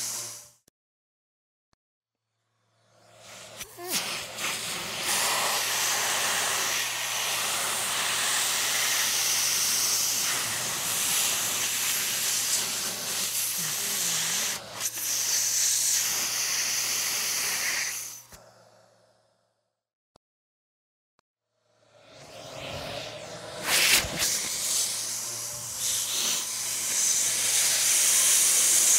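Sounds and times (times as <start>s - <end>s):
air compressor hissing: 3.2s - 18.4s, 22.6s - 28.9s
compressor low hum: 21.8s - 28.0s.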